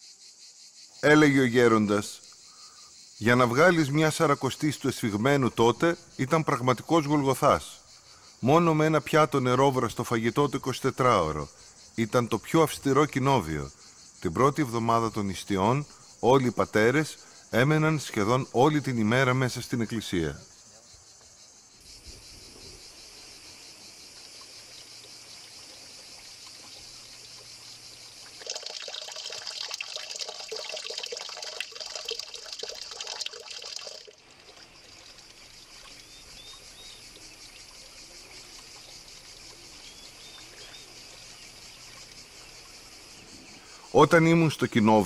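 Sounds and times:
insects droning: 0.0s - 45.0s
water splashing into pool: 25.0s - 39.6s
bird chirps: 35.9s - 37.2s, 39.6s - 42.1s.

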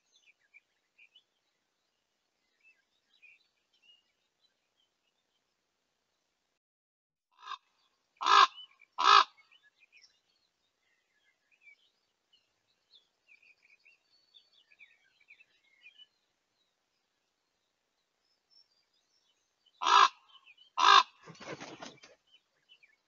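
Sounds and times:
ravens croaking: 7.4s - 9.4s, 19.8s - 21.5s
small birds chirping: 7.4s - 23.0s.

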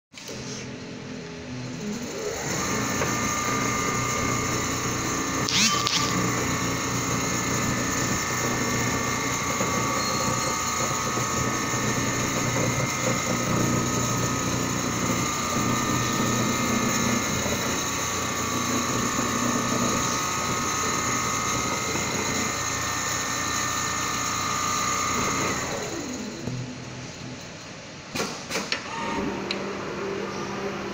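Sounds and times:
high machine whine: 0.4s - 28.0s
short high squeak: 5.5s - 6.2s, 10.0s - 10.7s.

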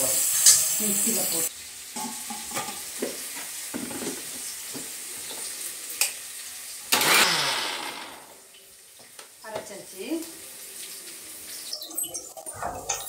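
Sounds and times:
faint frying sizzle: 0.0s - 7.2s, 8.1s - 13.0s
mixer grinder burst: 6.9s - 8.4s.

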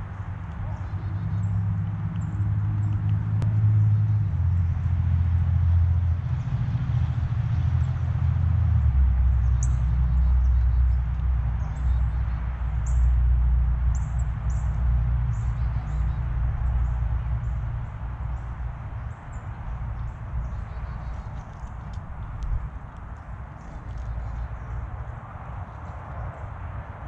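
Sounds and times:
songbirds chip calls: 0.0s - 3.2s, 9.3s - 13.1s, 13.9s - 26.6s.

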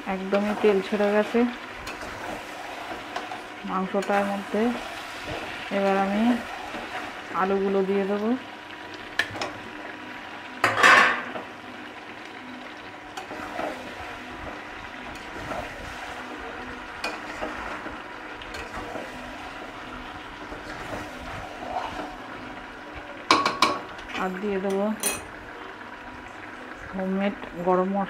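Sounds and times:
meat sizzling in oil: 0.0s - 27.7s.

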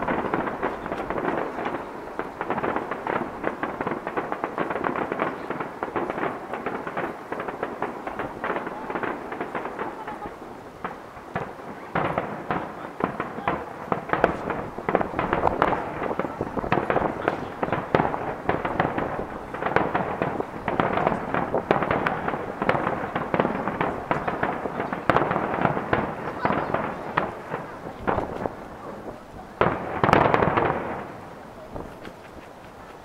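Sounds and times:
firework bangs and crackles: 0.0s - 33.0s.

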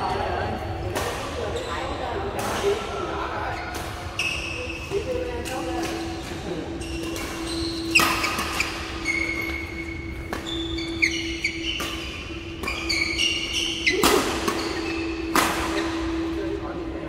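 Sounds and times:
shoes squeaking on court: 1.3s - 16.3s
rackets striking shuttlecock: 7.0s - 16.0s.

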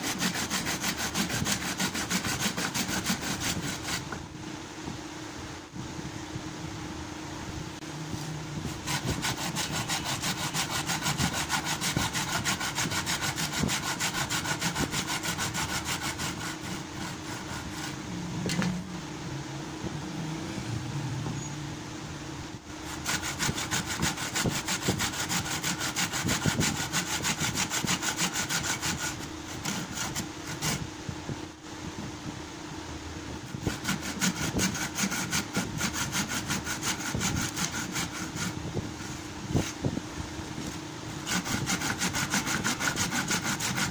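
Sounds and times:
hand saw cutting wood: 0.0s - 4.1s, 8.7s - 18.0s, 22.9s - 30.8s, 33.5s - 38.6s, 41.2s - 43.9s
steady low hum: 0.0s - 43.9s.

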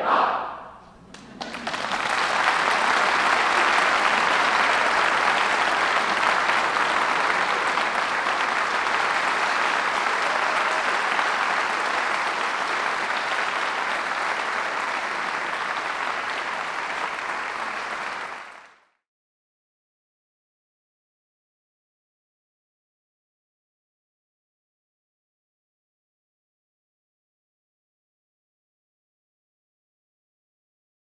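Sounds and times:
audience applauding: 1.1s - 18.9s.

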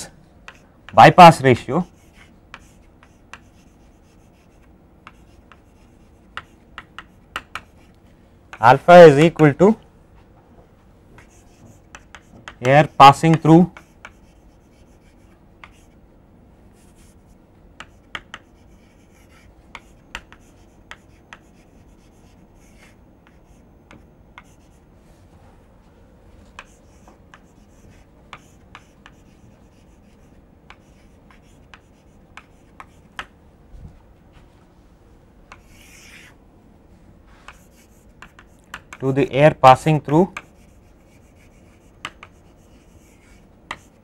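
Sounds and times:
chalk tapping on blackboard: 0.4s - 1.1s, 1.9s - 7.9s, 11.2s - 16.0s, 16.9s - 24.8s, 26.5s - 33.3s, 35.5s - 36.3s, 37.4s - 39.0s, 39.9s - 44.0s
chalk scratching on blackboard: 1.3s - 7.9s, 11.2s - 16.0s, 16.8s - 24.9s, 26.6s - 33.3s, 35.5s - 36.4s, 37.3s - 39.0s, 39.8s - 44.0s
chalk scraping: 1.3s - 8.0s, 11.2s - 16.0s, 16.8s - 23.7s, 26.6s - 33.1s, 35.5s - 36.4s, 37.3s - 38.8s, 40.1s - 44.0s.

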